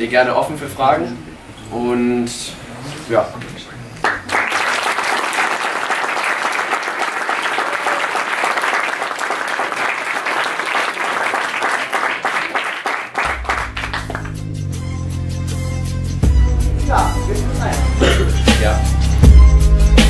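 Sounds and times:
audience applauding: 4.0 - 14.5
music with deep bass: 13.3 - 20.0.

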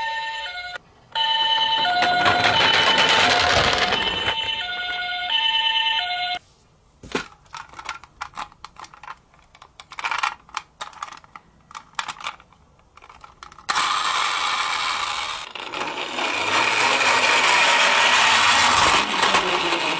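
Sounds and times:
toy electronic siren: 0.0 - 6.4
toy car wheels whirring: 1.8 - 4.6, 7.8 - 19.9
plastic toy clicks and rattles: 7.4 - 19.9.

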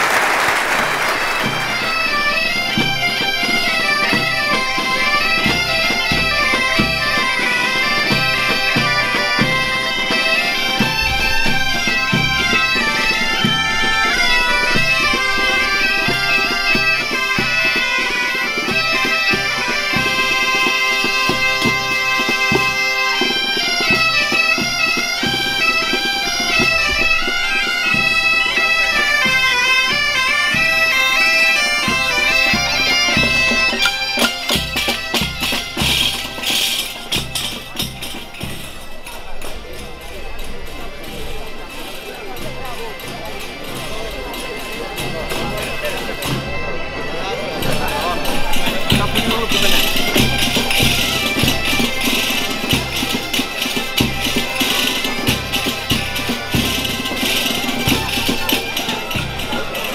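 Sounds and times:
applause: 0.0 - 2.2
drum beat: 0.0 - 3.0
bagpipe band playing: 0.0 - 59.9.

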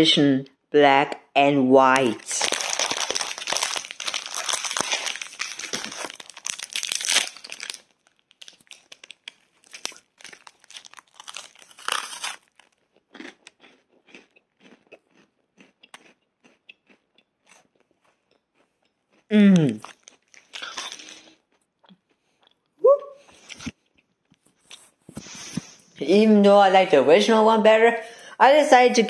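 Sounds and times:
foil wrapper crinkling: 2.0 - 12.8
crunchy biting and chewing: 2.2 - 25.0.

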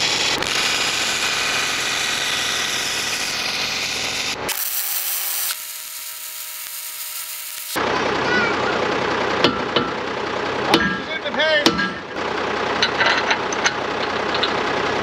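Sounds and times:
power tool rasping metal: 0.0 - 7.8
steady whine: 0.0 - 12.2.

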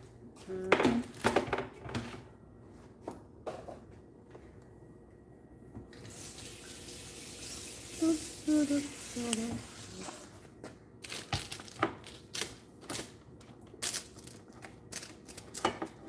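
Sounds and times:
tap water running: 5.9 - 10.2.

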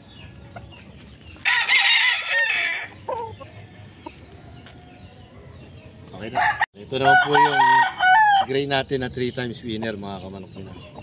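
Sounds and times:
rooster crowing: 1.4 - 3.9, 6.3 - 8.5.

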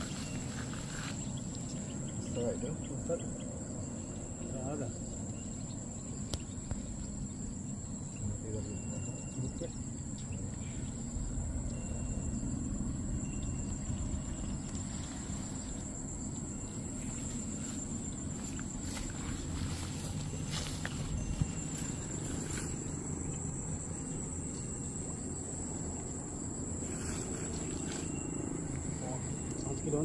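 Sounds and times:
insects trilling: 0.0 - 30.0
wind rumble on microphone: 9.5 - 23.9.

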